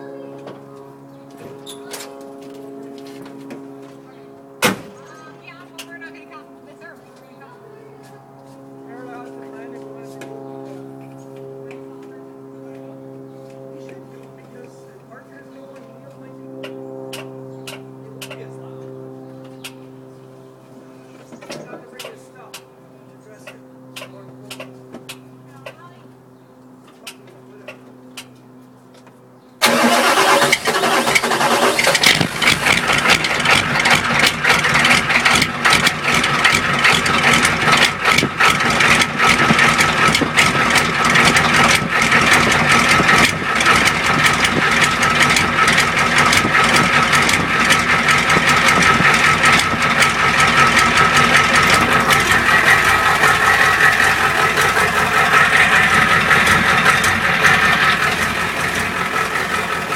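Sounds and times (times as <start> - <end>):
diesel engine starting and idling: 29.6 - 59.9.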